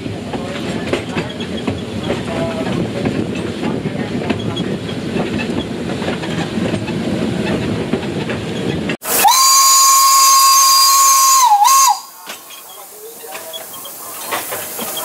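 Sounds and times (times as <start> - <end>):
steam locomotive rumbling and rattling: 0.0 - 15.0
steam whistle blowing: 9.0 - 12.5.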